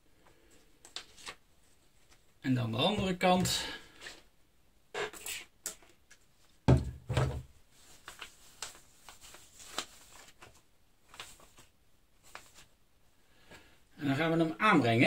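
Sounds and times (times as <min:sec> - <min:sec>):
plastic bottle thudding on desk: 0:06.7 - 0:07.5.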